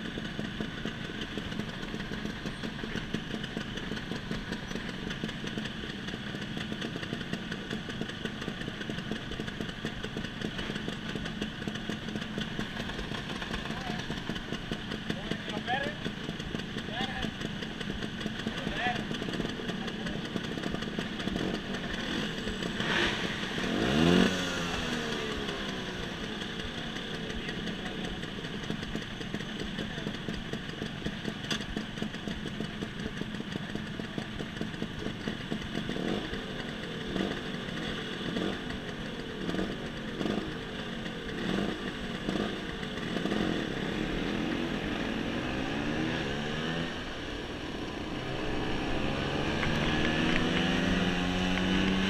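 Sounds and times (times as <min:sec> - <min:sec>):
scooter engines idling and revving: 0:00.0 - 0:52.0
scooters pulling away: 0:00.0 - 0:52.0.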